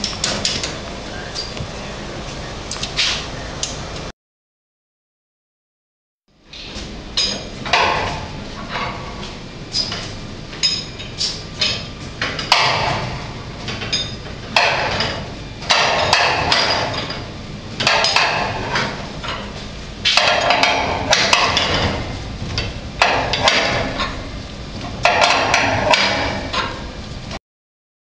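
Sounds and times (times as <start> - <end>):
metal bars clanking: 6.5 - 27.0.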